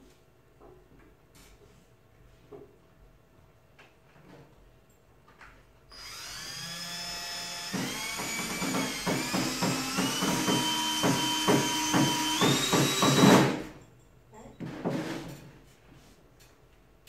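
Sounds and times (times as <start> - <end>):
power drill whining: 5.9 - 13.6
drill clicking: 7.2 - 13.6.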